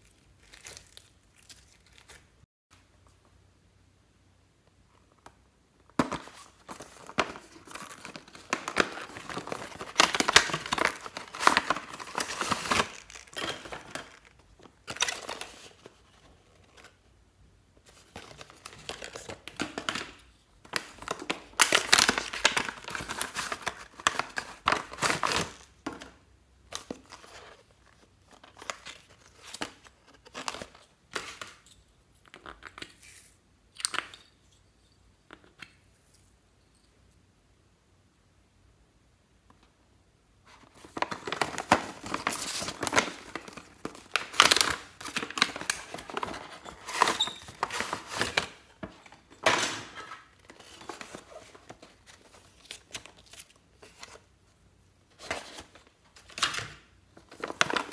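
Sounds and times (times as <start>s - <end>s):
plastic packaging crinkling and tearing: 0.0s - 2.3s, 6.1s - 16.0s, 40.7s - 54.3s.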